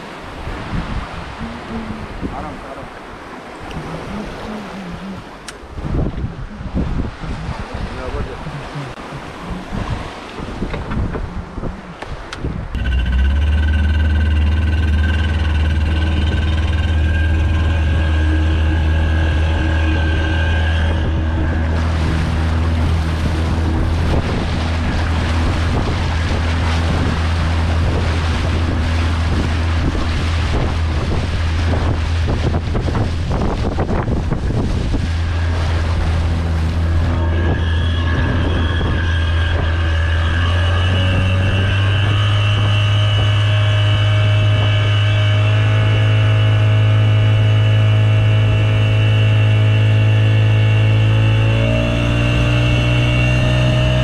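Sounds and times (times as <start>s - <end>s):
rushing wind and water: 0.0s - 54.0s
speedboat engine droning: 0.0s - 54.0s
boat hull bumps: 8.6s - 11.4s.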